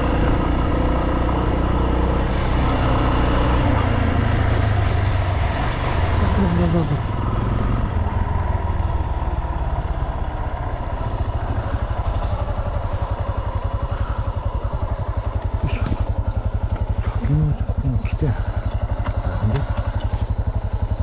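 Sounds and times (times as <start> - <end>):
motorcycle engine idling: 6.1 - 21.0.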